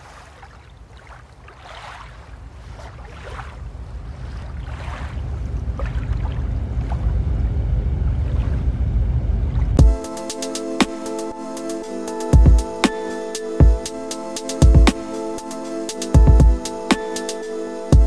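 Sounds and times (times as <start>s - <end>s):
wake splashing: 0.0s - 7.2s, 8.2s - 8.7s
boat engine rumbling: 2.0s - 12.8s.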